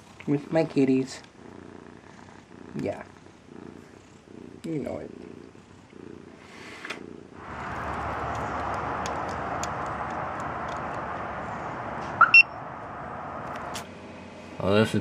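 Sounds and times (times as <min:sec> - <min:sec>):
cat purring: 0:00.0 - 0:11.8
steady rushing outdoor noise: 0:07.4 - 0:15.0
remote fob beeps: 0:12.2 - 0:12.6.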